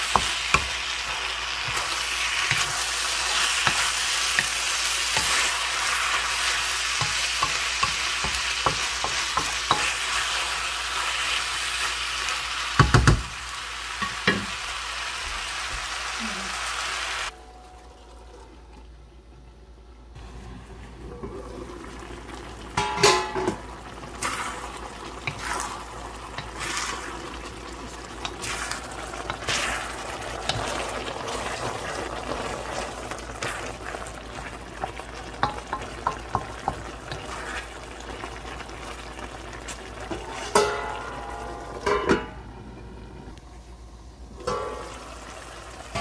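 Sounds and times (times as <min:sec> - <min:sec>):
chicken sizzling in a pan: 0:00.0 - 0:17.4, 0:21.1 - 0:42.0
metal pan lid clanking: 0:22.8 - 0:23.6, 0:40.4 - 0:42.4.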